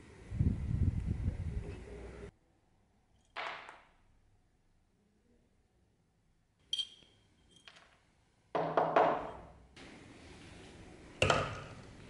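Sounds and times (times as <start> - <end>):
metal pieces clinking on workbench: 6.7 - 8.0.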